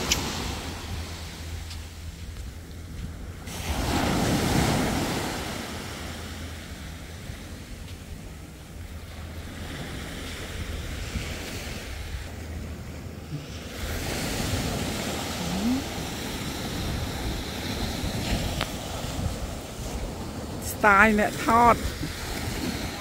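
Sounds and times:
sea waves washing ashore: 0:00.0 - 0:23.0
wind buffeting microphone: 0:06.7 - 0:20.7.

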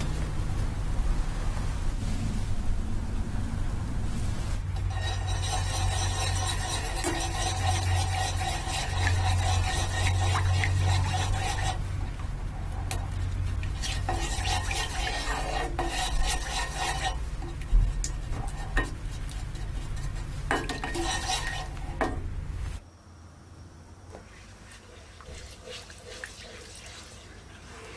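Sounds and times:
steady low hum: 0:00.0 - 0:24.1
spatula scraping frying pan: 0:04.6 - 0:22.8, 0:24.8 - 0:27.1
spatula tapping pan: 0:04.7 - 0:22.6.

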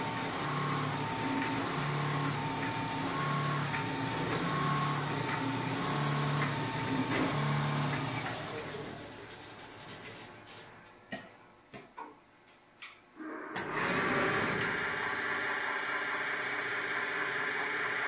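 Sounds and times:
quilting machine hum: 0:00.0 - 0:09.4, 0:13.2 - 0:18.0.

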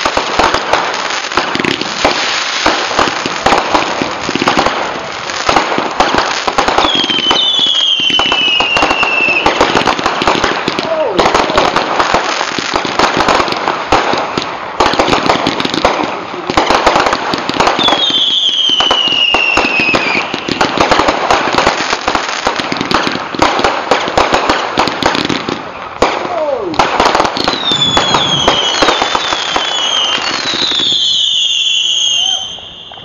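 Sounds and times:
fireworks crackling and popping: 0:00.0 - 0:33.0
falling firework whistles: 0:06.0 - 0:09.8, 0:17.6 - 0:21.1, 0:27.4 - 0:33.0.

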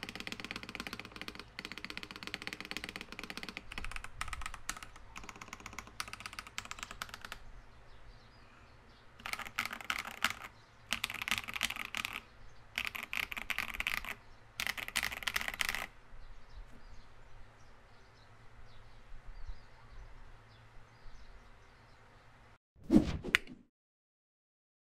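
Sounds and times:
typing on mechanical keyboard: 0:00.0 - 0:07.4, 0:09.2 - 0:12.2, 0:12.8 - 0:15.9.

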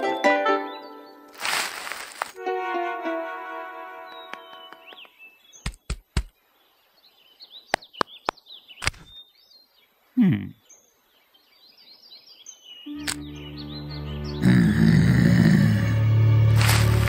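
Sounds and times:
birds chirping: 0:00.0 - 0:02.4, 0:03.9 - 0:16.0
sharp clicks: 0:04.3 - 0:06.3, 0:07.7 - 0:09.1.

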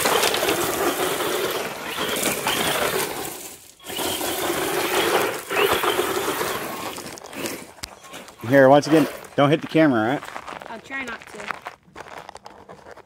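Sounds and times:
rc truck motor whining: 0:00.0 - 0:09.3
tyres crunching on gravel: 0:00.0 - 0:13.0.

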